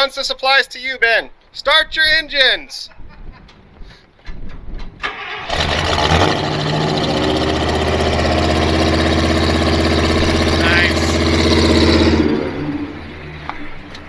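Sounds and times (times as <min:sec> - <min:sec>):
truck engine starting and idling: 0:04.8 - 0:14.0.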